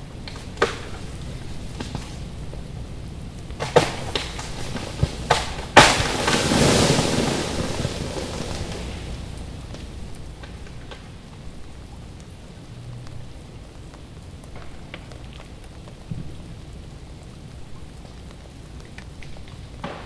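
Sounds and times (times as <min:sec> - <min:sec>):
freezing rain pattering: 0:00.0 - 0:20.0
icy branches cracking: 0:00.0 - 0:20.0
branch crashing down: 0:03.6 - 0:11.0.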